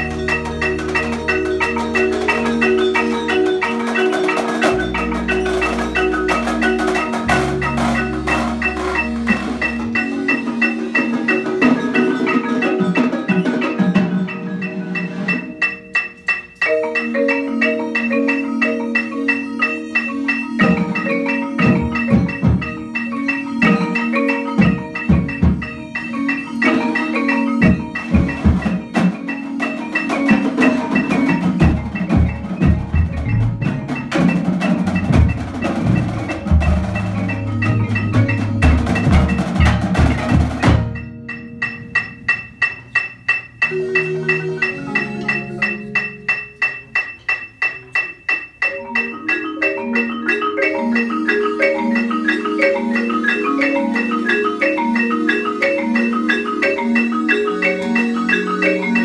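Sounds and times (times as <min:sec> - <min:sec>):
marimbas playing a pattern: 0:00.0 - 0:59.0.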